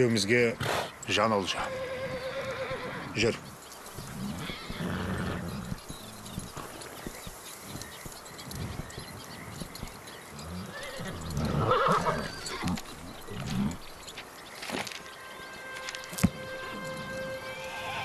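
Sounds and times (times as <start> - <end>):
horse neighing: 1.5 - 5.9, 10.4 - 14.0
hoof clops: 2.5 - 17.4.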